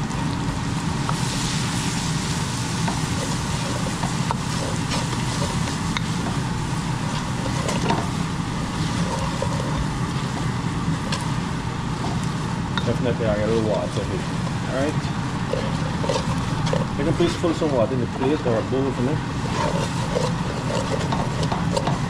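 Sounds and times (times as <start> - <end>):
spices sizzling in hot oil: 0.0 - 12.8, 19.3 - 22.0.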